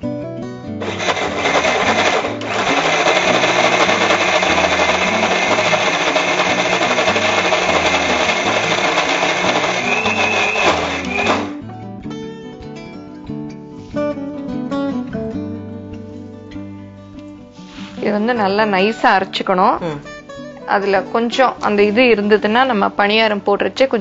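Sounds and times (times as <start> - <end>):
mixer grinder running: 0.8 - 11.6.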